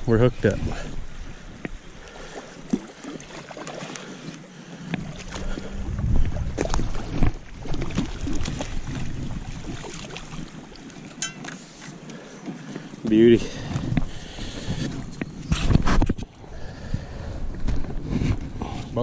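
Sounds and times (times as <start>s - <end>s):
low wind rumble on microphone: 4.9s - 10.8s, 13.4s - 19.0s.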